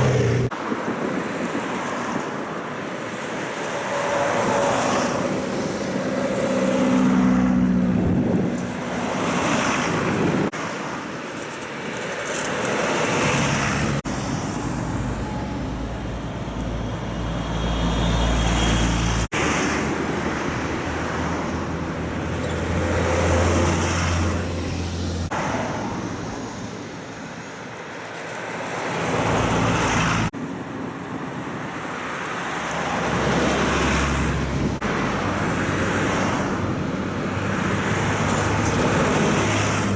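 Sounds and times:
bus diesel engine drone: 0.0 - 1.1, 2.4 - 11.1, 11.8 - 28.1
road traffic passing: 0.0 - 39.9.

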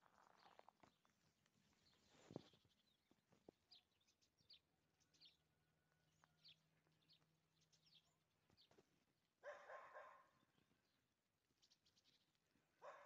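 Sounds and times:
small birds chirping: 0.0 - 5.5, 6.2 - 13.0
dog barking: 9.4 - 10.4, 12.8 - 13.0.

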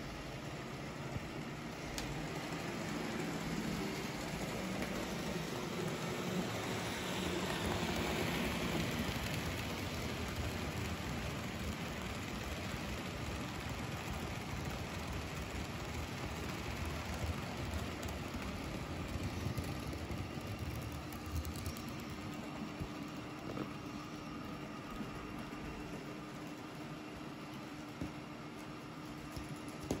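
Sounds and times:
wheels rolling on rails: 0.0 - 30.0
model train motor whirring: 1.6 - 24.2.

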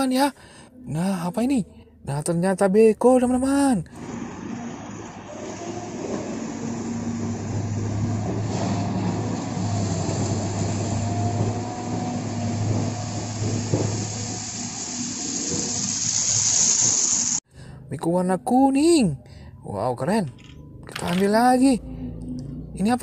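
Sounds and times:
excavator engine drone: 3.9 - 17.4
wavering hydraulic whine: 4.0 - 17.4.

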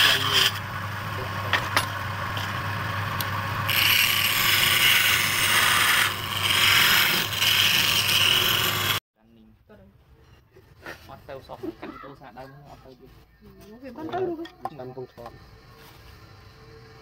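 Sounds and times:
tool scraping wood on lathe: 0.0 - 0.7, 2.3 - 9.0
lathe humming: 0.0 - 9.0.

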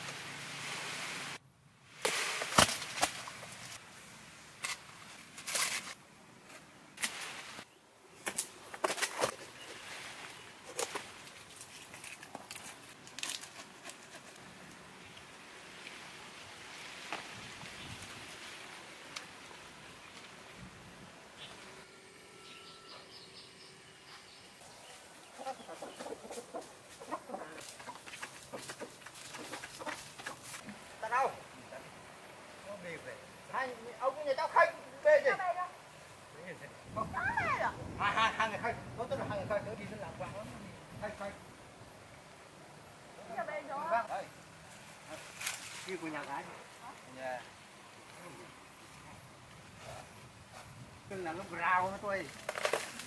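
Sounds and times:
rustling: 4.6 - 16.1, 24.1 - 30.8, 44.0 - 53.0
chickens clucking: 25.2 - 30.5.

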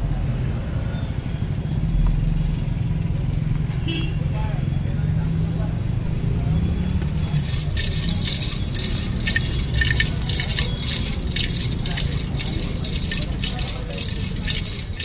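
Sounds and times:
low street rumble: 0.0 - 15.0
dry snack rattling in steel bowl: 7.1 - 15.0.

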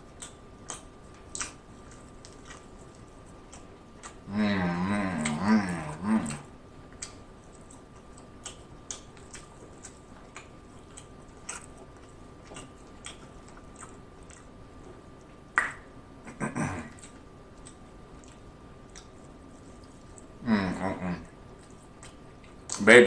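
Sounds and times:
chewing: 0.0 - 22.8
short vocal sound: 4.3 - 6.5, 20.4 - 21.3.

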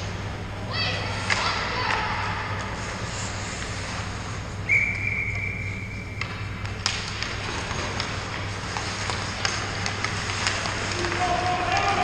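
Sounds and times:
steady low hum: 0.0 - 12.0
high whistle tone: 4.6 - 6.2.

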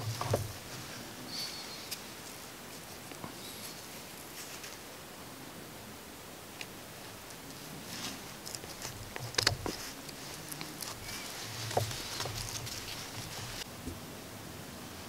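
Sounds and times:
metal clicks and scrapes: 7.5 - 13.6.

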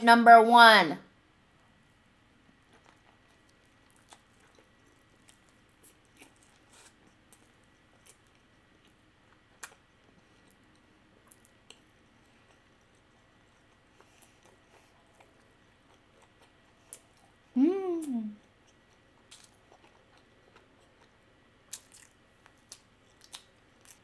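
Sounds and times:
mouth chewing wet clicks: 21.7 - 24.0.

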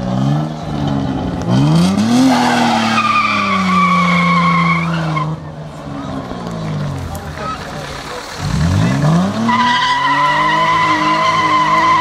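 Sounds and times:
car engine revving hard: 0.0 - 5.4, 8.4 - 12.0
tyre squeal: 9.4 - 12.0.

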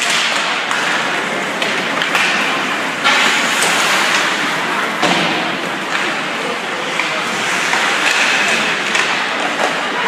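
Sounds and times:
hockey sticks and puck clacking: 0.0 - 10.0
skates hissing on ice: 2.3 - 9.6.

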